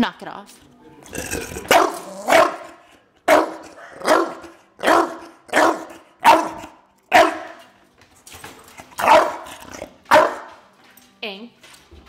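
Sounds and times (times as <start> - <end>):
dog barking: 1.7 - 7.7, 9.0 - 10.6.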